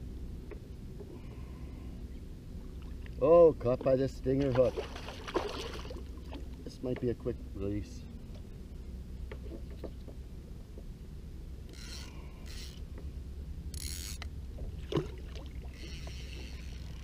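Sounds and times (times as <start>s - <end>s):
fishing reel ratcheting: 11.7s - 12.8s, 13.7s - 14.3s, 15.7s - 17.0s.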